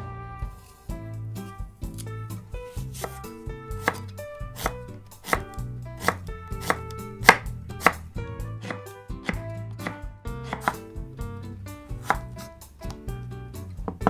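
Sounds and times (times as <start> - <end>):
soft background music: 0.0 - 14.0
knife chopping on wooden board: 2.7 - 11.0, 11.9 - 13.0.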